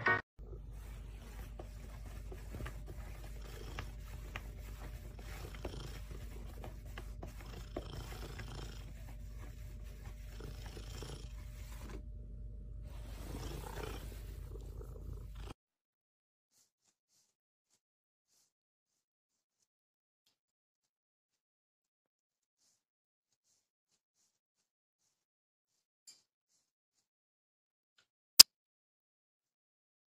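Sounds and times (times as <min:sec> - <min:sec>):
cat purring: 0:00.4 - 0:12.2, 0:12.8 - 0:15.6.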